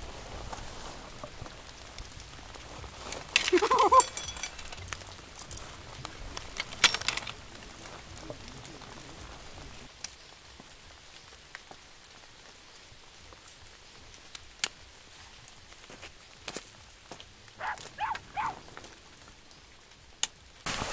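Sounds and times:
light rain falling: 0:00.0 - 0:20.9
metal tent poles clinking: 0:02.8 - 0:08.8.

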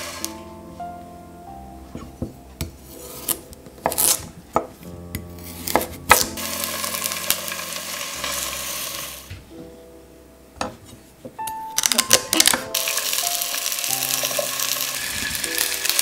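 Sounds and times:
vegetables sizzling in hot oil: 0:06.4 - 0:09.3, 0:12.8 - 0:16.0.

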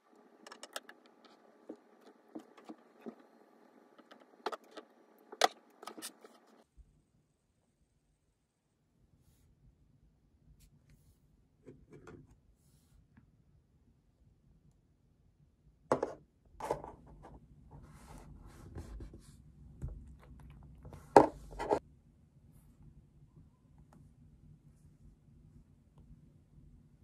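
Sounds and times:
light rubbing and scraping: 0:00.2 - 0:06.6, 0:16.6 - 0:21.8.

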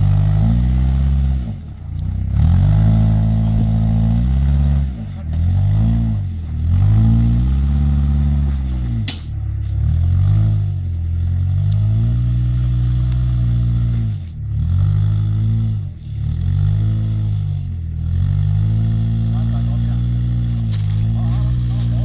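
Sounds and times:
off-road vehicle engine revving: 0:00.0 - 0:22.0.

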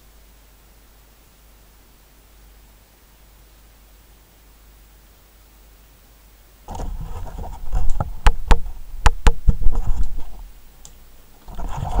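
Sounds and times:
hand rubbing microphone: 0:06.7 - 0:10.5, 0:11.4 - 0:12.0.

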